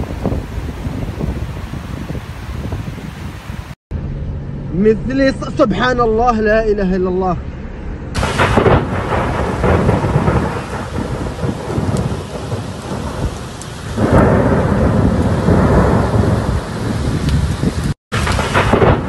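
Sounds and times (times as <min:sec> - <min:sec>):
deep thunder rumble: 0:00.0 - 0:03.7, 0:07.8 - 0:19.0
heavy rain: 0:00.0 - 0:03.8, 0:08.2 - 0:19.0.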